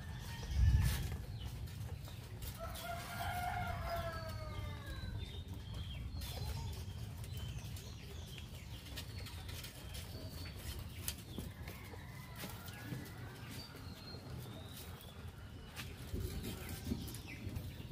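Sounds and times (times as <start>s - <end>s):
rooster crowing: 2.7s - 5.1s.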